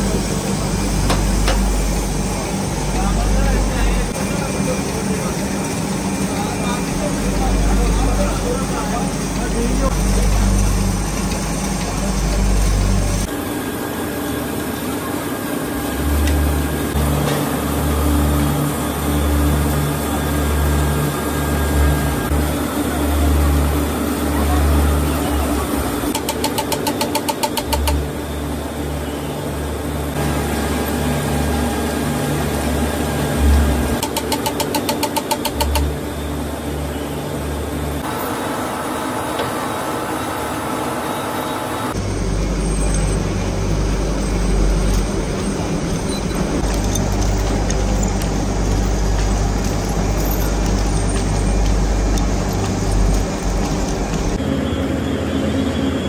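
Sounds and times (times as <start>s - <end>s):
machinery humming: 0.0s - 56.0s
fast regular clicking: 26.1s - 28.0s, 34.0s - 35.9s.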